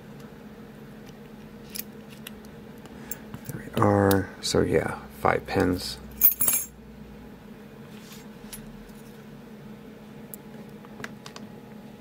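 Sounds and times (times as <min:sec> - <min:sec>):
keys jingling on key ring: 0:06.2 - 0:06.7.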